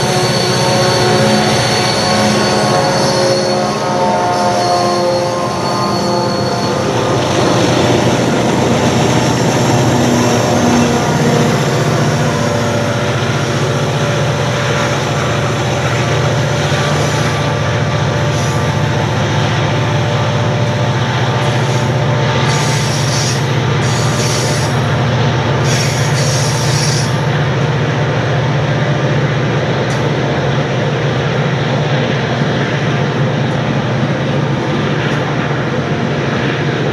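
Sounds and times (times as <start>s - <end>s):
wheel squeal: 0.0s - 19.1s, 21.4s - 25.0s, 25.6s - 27.3s
diesel locomotive engine drone: 0.0s - 36.9s
freight wagons rumbling: 6.0s - 36.9s.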